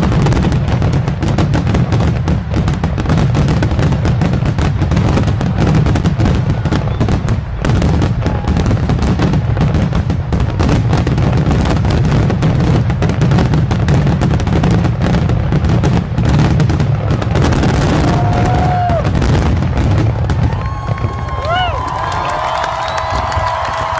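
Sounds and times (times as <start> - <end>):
fireworks bursting: 0.0 - 23.9
firework whistle: 4.9 - 9.8, 17.3 - 23.9.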